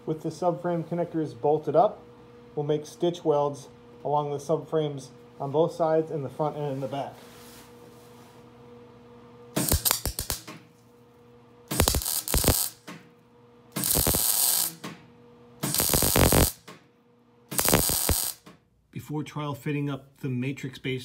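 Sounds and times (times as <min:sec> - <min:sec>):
welding arc crackling: 0:09.6 - 0:10.6, 0:11.7 - 0:12.9, 0:13.8 - 0:14.8, 0:15.6 - 0:16.7, 0:17.5 - 0:18.5.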